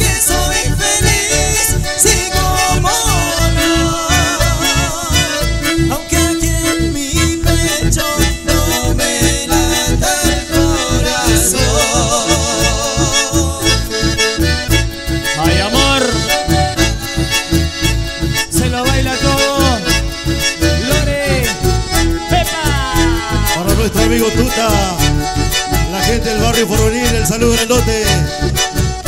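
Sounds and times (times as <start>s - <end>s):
button accordions playing melody: 0.0s - 29.0s
pulsing bass beat: 0.0s - 29.0s.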